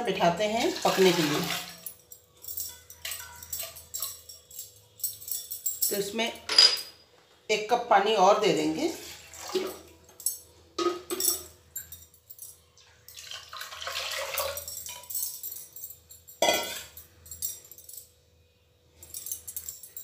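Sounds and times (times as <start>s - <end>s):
water pouring and splashing: 0.6s - 1.8s, 8.9s - 10.0s, 13.1s - 14.7s
metal bowl clinking: 0.6s - 7.0s, 9.1s - 18.2s.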